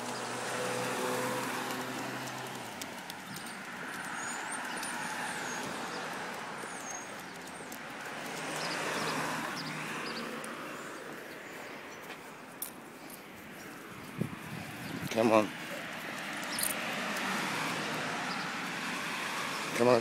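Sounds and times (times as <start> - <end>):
car driving past: 0.0 - 2.8
birds chirping: 0.0 - 20.0.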